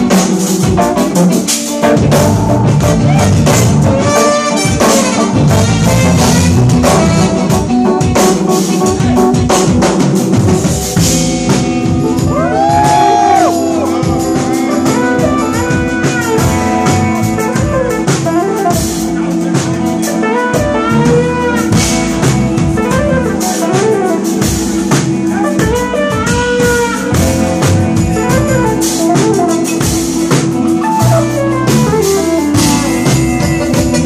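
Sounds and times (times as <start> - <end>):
jazz fusion band playing: 0.0 - 34.0.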